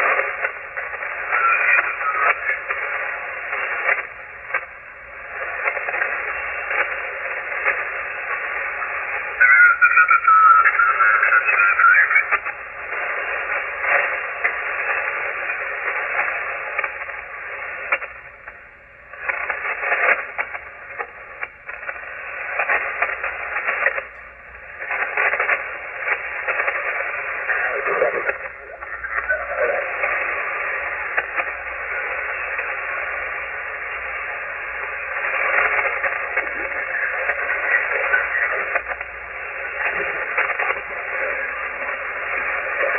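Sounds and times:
radio static hiss: 0:00.0 - 0:42.9
weak radio voices: 0:00.0 - 0:42.9
warbling radio tone: 0:00.8 - 0:03.1, 0:07.9 - 0:12.6, 0:24.9 - 0:32.7.

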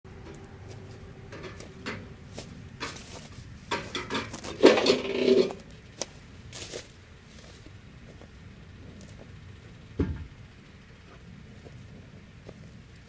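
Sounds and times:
metal and wood gear clattering: 0:01.3 - 0:06.1.

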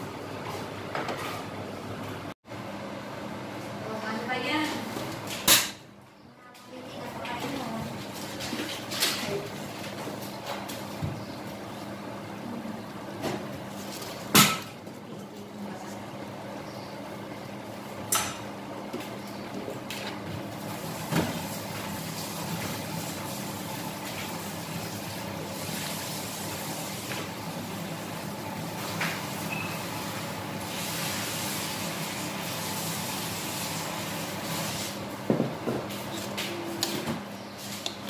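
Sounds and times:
vegetables sizzling in a wok: 0:20.6 - 0:35.1.

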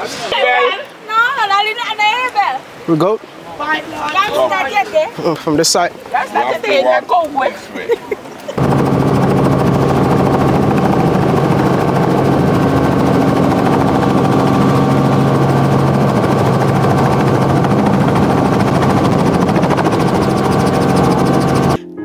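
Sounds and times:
helicopter rotor and engine: 0:08.4 - 0:21.8.

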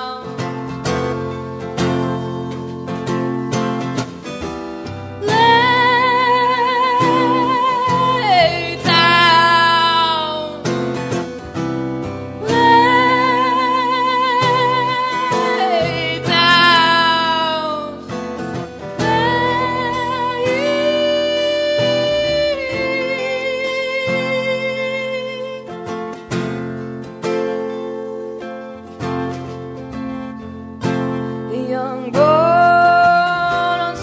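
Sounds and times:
strummed acoustic guitar: 0:00.0 - 0:34.0
woman singing: 0:00.0 - 0:34.0.

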